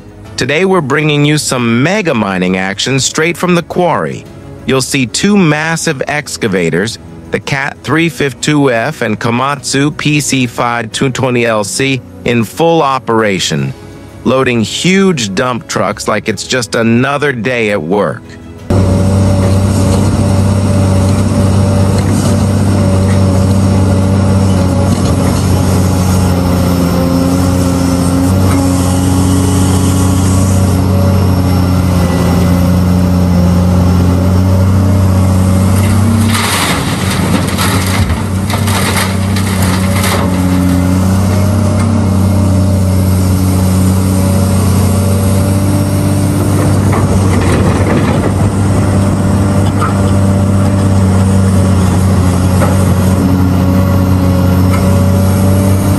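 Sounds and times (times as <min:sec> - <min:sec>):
excavator diesel engine drone: 0:00.0 - 0:55.9
sharp knocks and clatter: 0:35.8 - 0:42.0, 0:51.9 - 0:53.2.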